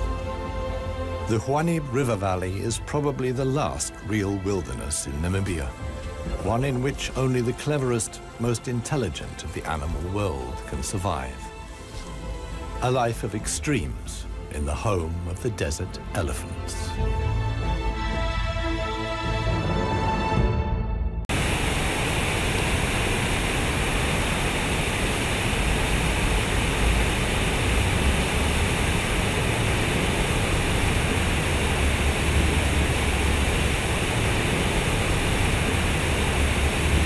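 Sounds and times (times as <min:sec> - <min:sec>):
music: 0:00.0 - 0:21.4
fountain water splashing into pool: 0:21.4 - 0:37.0.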